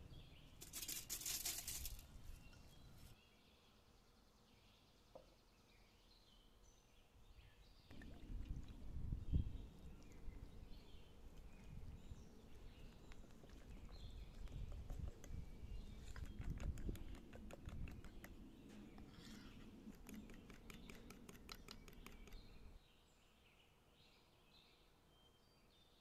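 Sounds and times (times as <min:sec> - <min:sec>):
liquid pouring: 0:07.9 - 0:09.2
faint bird chirps: 0:09.2 - 0:26.0
stirring in a bowl: 0:13.4 - 0:22.6.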